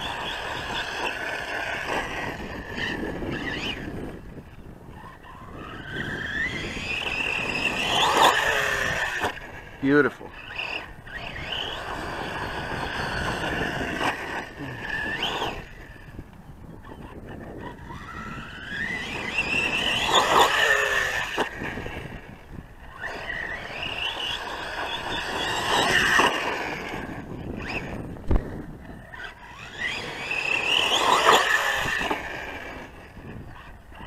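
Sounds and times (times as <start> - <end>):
electric motor whining: 0.0 - 34.0.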